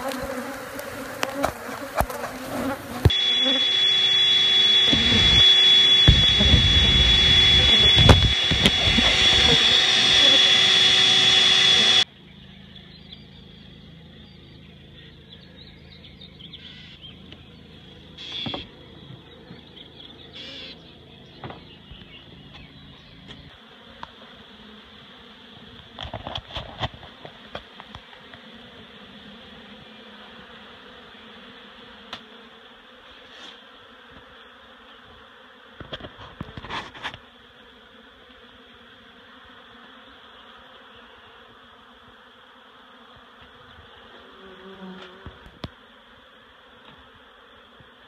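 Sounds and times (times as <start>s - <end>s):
bees buzzing: 0.0s - 12.1s, 16.6s - 48.0s.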